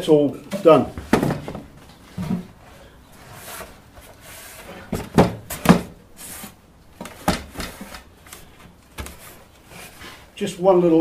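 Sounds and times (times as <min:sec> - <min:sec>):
box knocks and clunks: 0:00.6 - 0:02.6, 0:04.9 - 0:06.0, 0:07.0 - 0:08.0.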